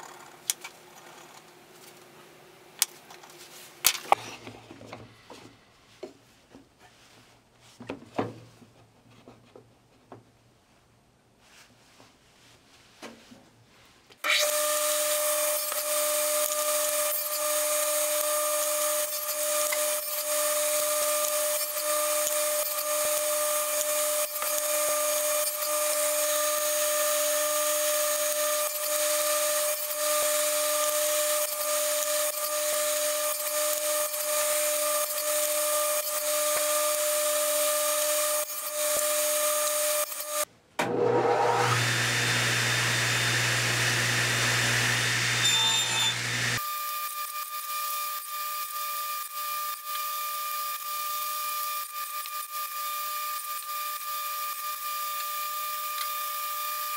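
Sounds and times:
table saw cutting wood: 0:14.2 - 0:56.9
saw motor starting with whine: 0:27.8 - 0:46.7.

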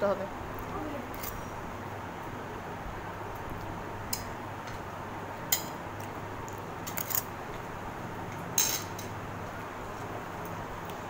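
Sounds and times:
cutlery clinking on plates: 0:08.6 - 0:09.1.

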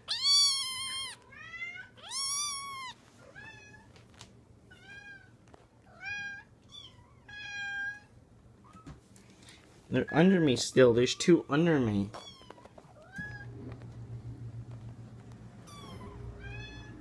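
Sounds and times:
kittens meowing: 0:00.0 - 0:03.8.

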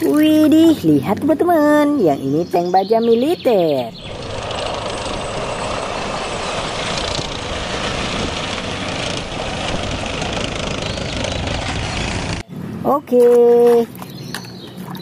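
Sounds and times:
tank engine and tracks running: 0:03.9 - 0:12.8.

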